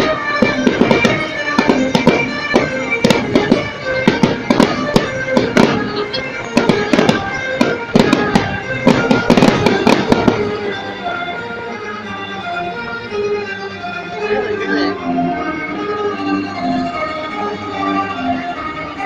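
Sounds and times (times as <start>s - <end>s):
fireworks exploding: 0.0s - 11.0s
music playing: 0.0s - 19.0s.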